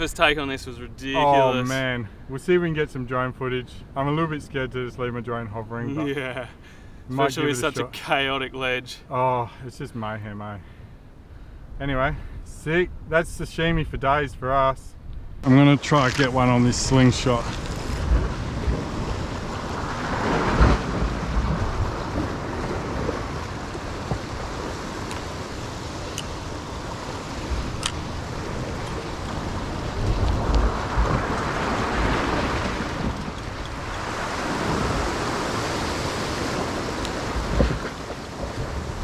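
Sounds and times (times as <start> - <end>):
wind rumble on microphone: 11.6 - 39.0
ocean swell washing against rocks: 16.4 - 39.0.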